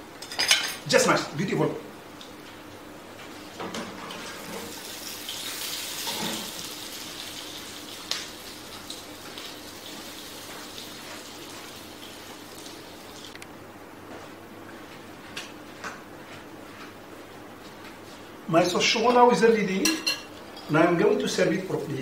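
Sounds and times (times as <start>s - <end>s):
water running from a tap: 4.4s - 13.3s.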